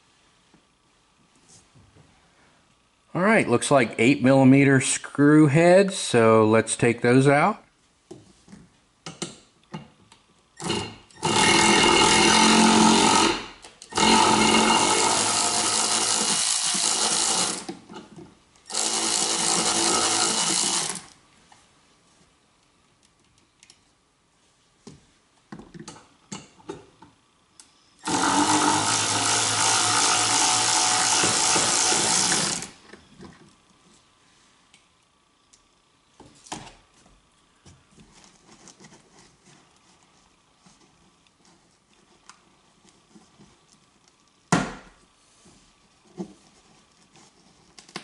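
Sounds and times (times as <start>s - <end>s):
cordless power driver running: 10.6s - 17.8s, 18.7s - 21.2s, 28.0s - 32.8s.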